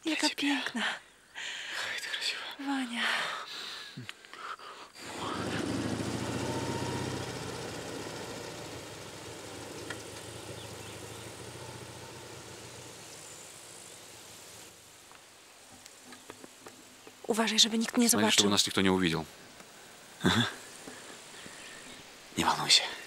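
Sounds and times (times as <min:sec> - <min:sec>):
motorcycle pulling away: 0:05.0 - 0:14.8.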